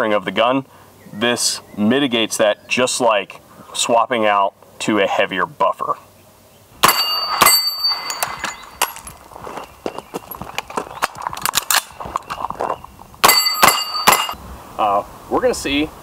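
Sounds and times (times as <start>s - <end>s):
gunshots: 6.8s - 8.4s
steel targets ringing: 6.8s - 9.2s, 13.2s - 14.4s.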